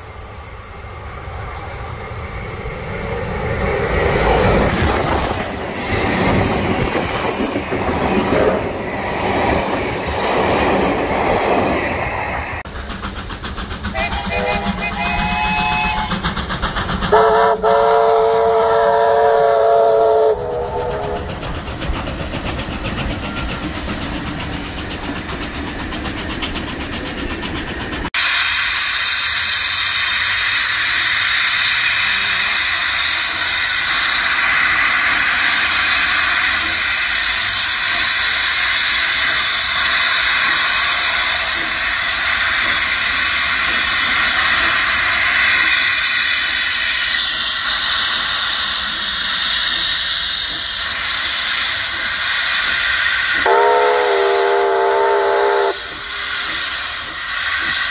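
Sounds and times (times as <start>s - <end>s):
loud steady steam hiss: 0.0s - 10.2s, 10.8s - 57.9s
rumble of passing train: 0.0s - 57.9s
steam locomotive whistle: 13.9s - 16.4s, 17.1s - 21.4s, 53.0s - 57.3s.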